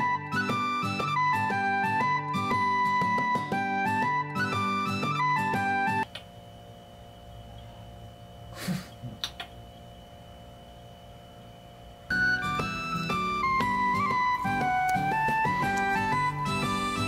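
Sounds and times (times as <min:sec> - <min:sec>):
background music: 0:00.0 - 0:06.0, 0:12.1 - 0:17.0
electrical hum: 0:00.0 - 0:17.0.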